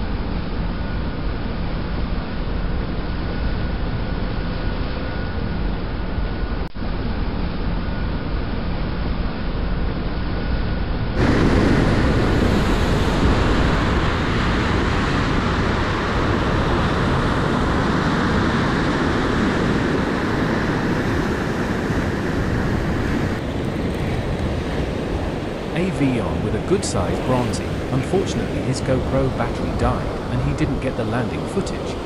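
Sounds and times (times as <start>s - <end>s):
surf on rocky shore: 11.2s - 32.0s
wind buffeting microphone: 11.2s - 32.0s.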